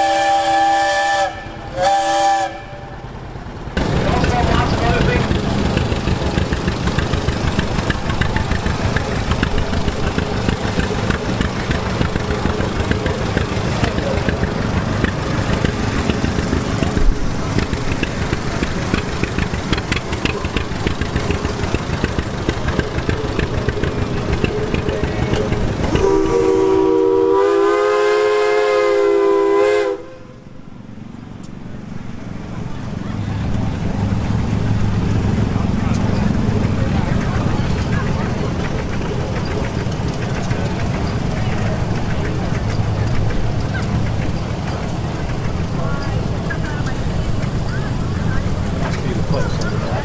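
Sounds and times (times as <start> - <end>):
steam whistle chord: 0.0 - 3.0, 25.9 - 30.4
engine exhaust beats: 0.0 - 50.0.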